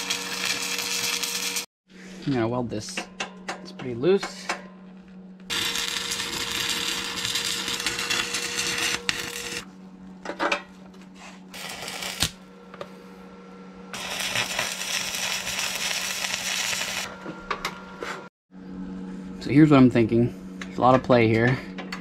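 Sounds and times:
welding arc crackling: 0.0 - 1.7, 5.5 - 9.7, 11.6 - 12.5, 14.0 - 17.1.

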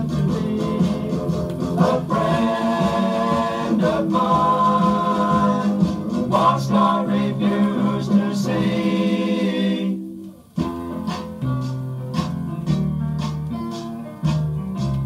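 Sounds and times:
sung vocals: 0.0 - 10.0.

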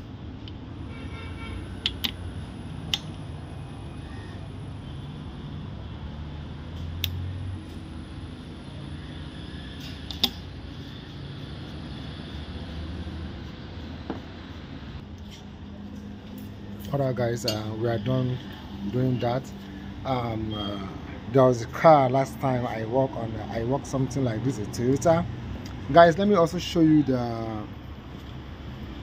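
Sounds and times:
steady low hum: 0.0 - 20.3.

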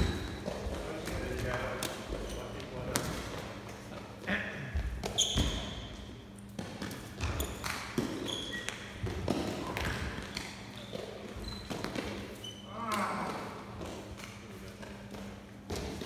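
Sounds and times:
trainers squeaking on floor: 5.0 - 5.9, 7.1 - 9.0, 10.2 - 12.9.

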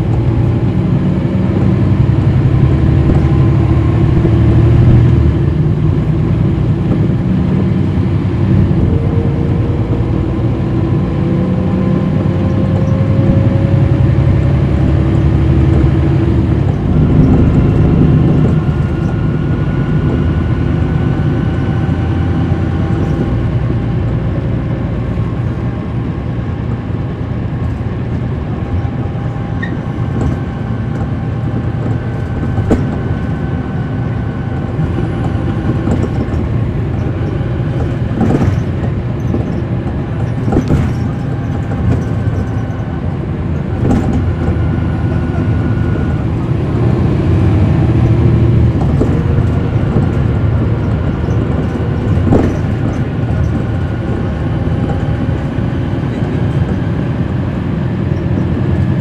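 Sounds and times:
bus diesel engine running: 0.0 - 59.0
knocks and rattles: 29.6 - 33.4, 34.6 - 44.7, 47.8 - 56.9.

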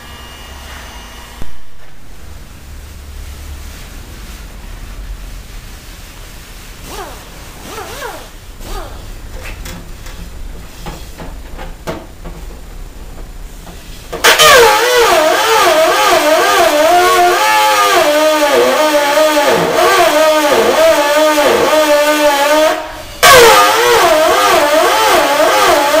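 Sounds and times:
low hum: 0.0 - 6.0.

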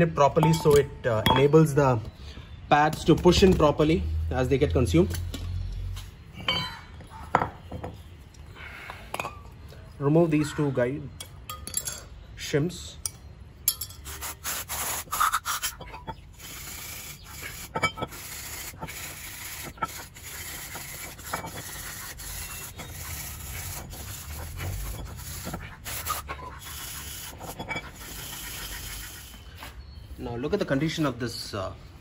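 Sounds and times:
stiff brush scrubbing metal: 14.0 - 29.4.

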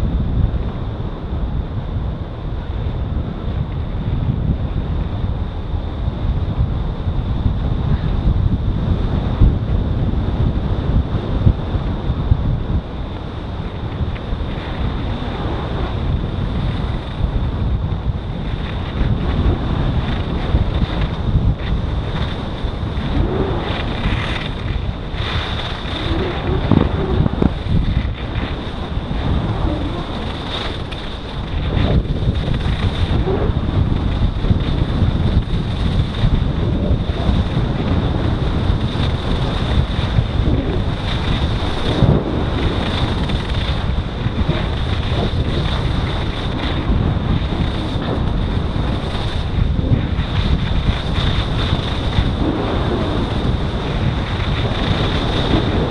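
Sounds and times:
wind buffeting microphone: 0.0 - 55.9
skis scraping over snow: 13.0 - 55.9.

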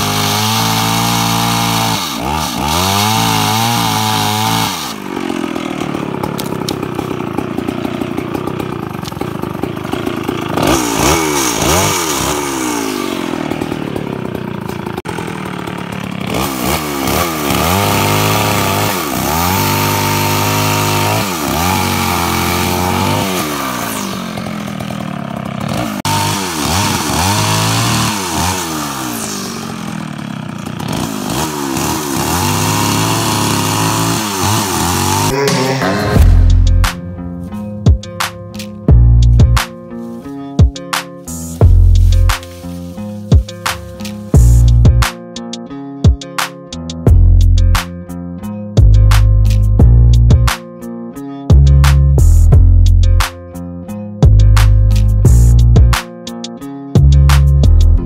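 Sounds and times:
chainsaw cutting wood: 0.0 - 37.4, 39.4 - 45.2.

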